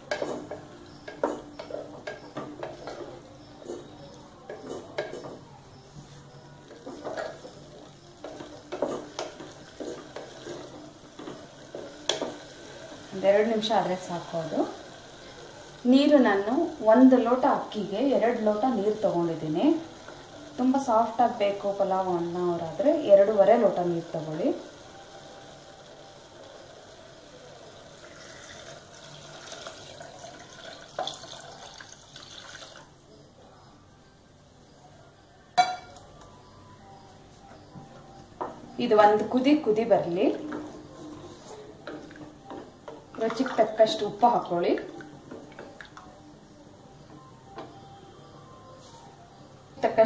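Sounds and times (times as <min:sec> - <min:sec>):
spatula scraping in pot: 0:00.0 - 0:12.3.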